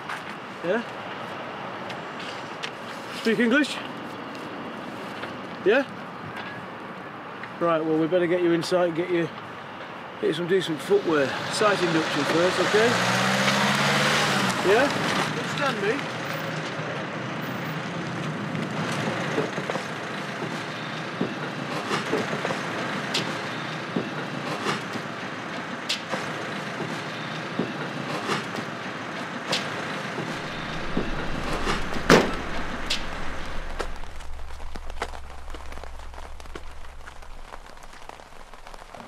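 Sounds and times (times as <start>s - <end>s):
rumble of vehicles and machinery: 0.0s - 39.0s
sharp knocks: 29.5s - 37.1s
low hum: 30.3s - 39.0s.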